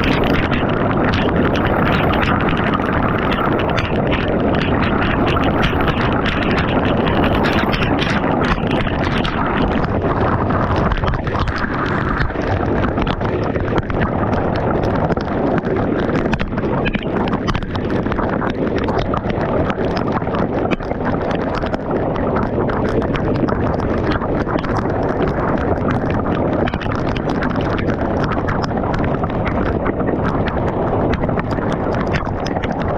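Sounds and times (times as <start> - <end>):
wind buffeting microphone: 0.0 - 32.9.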